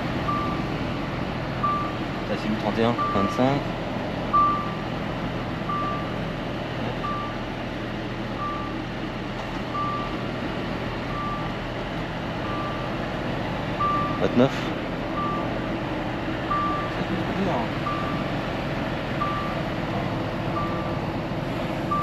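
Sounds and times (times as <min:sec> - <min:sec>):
diesel engine drone: 0:00.0 - 0:22.0
reversing alarm beeping: 0:00.3 - 0:00.7, 0:01.6 - 0:02.0, 0:02.9 - 0:03.5, 0:04.3 - 0:04.9, 0:05.7 - 0:06.2, 0:07.0 - 0:07.4, 0:08.4 - 0:08.8, 0:09.7 - 0:10.2, 0:11.1 - 0:11.6, 0:12.4 - 0:12.9, 0:13.8 - 0:14.4, 0:15.2 - 0:15.6, 0:16.5 - 0:18.3, 0:19.2 - 0:19.7, 0:20.5 - 0:21.1.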